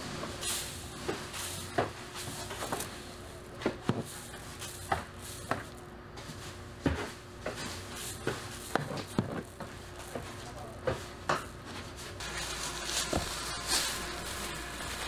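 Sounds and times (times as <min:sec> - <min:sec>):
steady machine hum: 0:00.0 - 0:15.0
objects knocking and clattering: 0:06.8 - 0:11.6.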